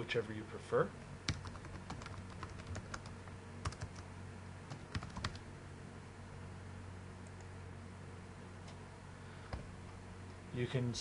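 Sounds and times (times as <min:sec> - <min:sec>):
steady low hum: 0:00.0 - 0:11.0
keyboard keys clicking: 0:01.3 - 0:04.0, 0:04.7 - 0:05.4.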